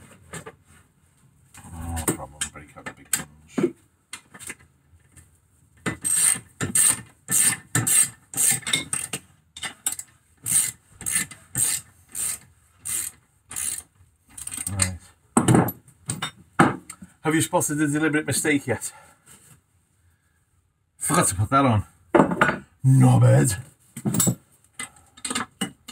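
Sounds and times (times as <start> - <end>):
hand ratchet clicking: 6.0 - 9.1, 9.8 - 14.9.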